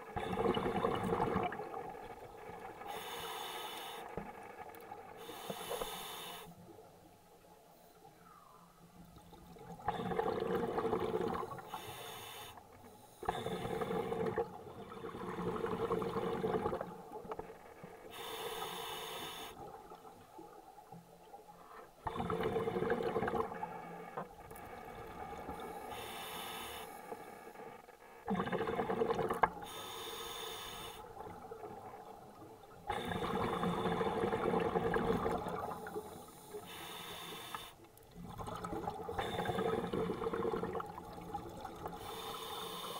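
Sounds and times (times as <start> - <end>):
diver breathing through regulator: 2.8 - 4.4, 5.1 - 6.6, 9.9 - 16.8, 17.8 - 19.8, 22.1 - 28.9, 29.6 - 31.2, 35.6 - 37.8, 39.1 - 40.7, 41.9 - 42.9.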